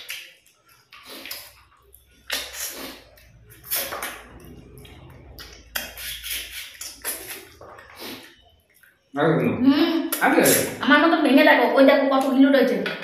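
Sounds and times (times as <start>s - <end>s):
people chewing and sucking bones: 0.0s - 9.1s.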